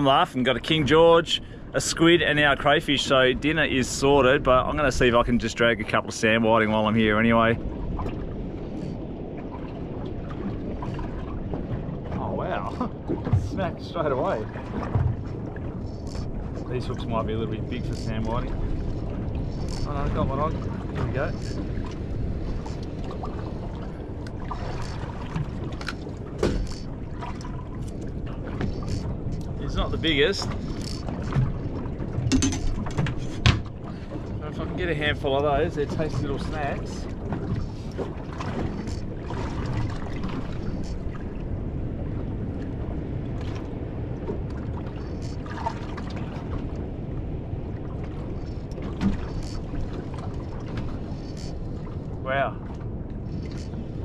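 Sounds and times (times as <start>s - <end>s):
water noise: 0.0s - 54.0s
wind: 0.0s - 54.0s
sharp clicks and knocks: 32.2s - 33.7s.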